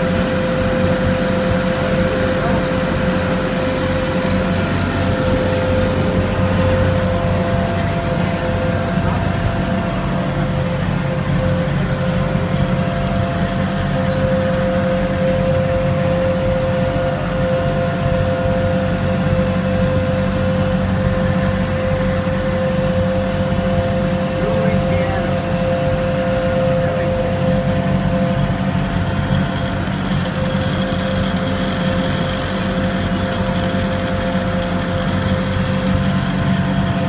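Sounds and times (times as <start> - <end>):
boat engine drone: 0.0 - 37.0
high-pitched whine: 0.0 - 37.0.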